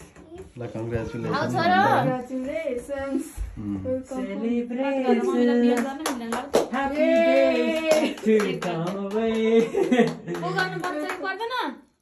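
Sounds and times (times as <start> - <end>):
voices singing together: 2.0 - 10.0
hand claps: 5.7 - 11.5.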